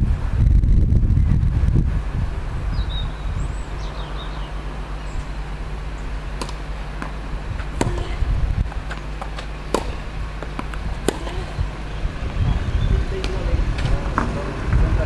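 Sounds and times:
wind rumble on microphone: 0.0 - 15.0
tennis ball pops: 6.4 - 11.8.

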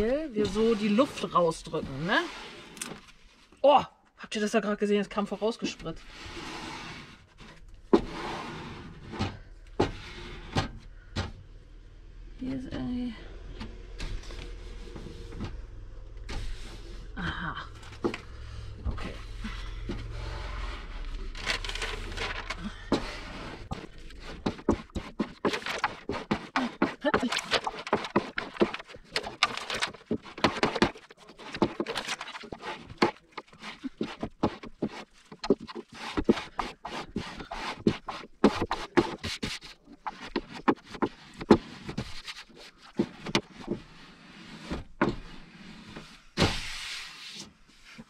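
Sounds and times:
taps and scrapes: 17.9 - 48.0
adhesive film scraping and crinkling: 20.4 - 43.9.

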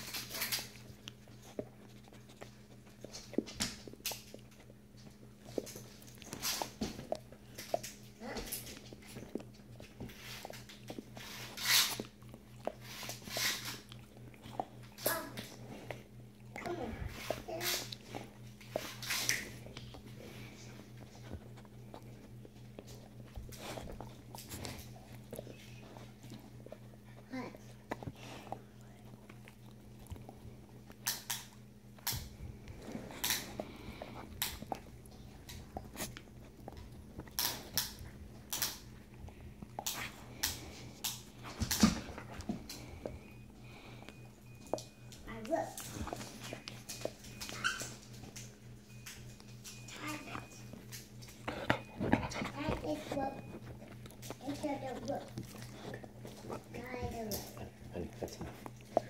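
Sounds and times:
faint low hum: 0.0 - 59.0
puppies scuffling and chomping: 0.0 - 59.0
puppies scuffling: 32.0 - 59.0.

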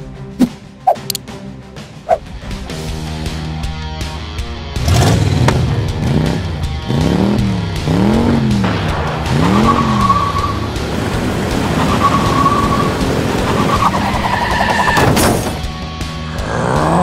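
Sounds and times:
loud engine noise: 4.7 - 14.3
tyres screeching: 11.7 - 15.2.

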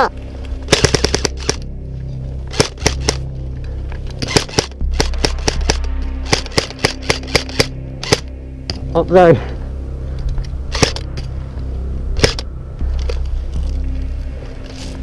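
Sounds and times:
airsoft guns firing: 0.7 - 1.6, 2.5 - 3.2, 4.2 - 8.3.

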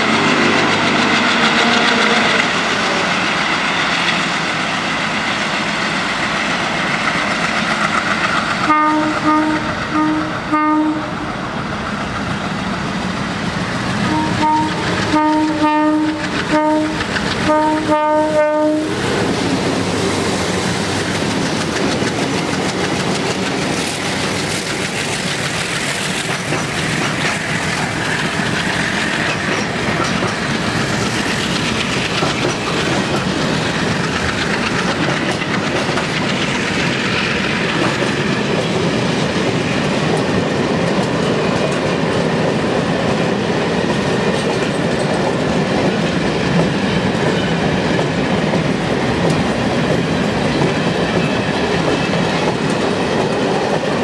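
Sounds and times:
freight train rumble: 0.0 - 54.0
locomotive air horn blasts: 8.7 - 11.2, 14.1 - 19.0
wheel clatter over rail joints: 14.7 - 17.5, 19.0 - 42.5
rushing air: 18.7 - 54.0.

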